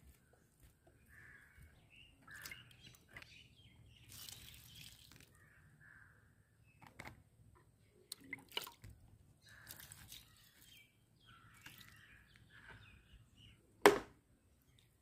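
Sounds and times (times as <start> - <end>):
faint bird chirps: 1.0 - 6.9
liquid trickling and dripping: 4.0 - 5.4, 8.1 - 10.8.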